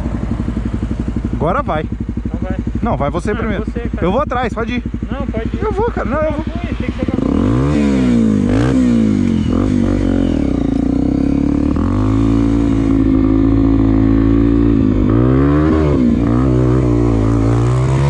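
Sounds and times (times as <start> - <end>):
dirt bike engine revving: 0.0 - 18.0
man speaking: 1.4 - 7.8.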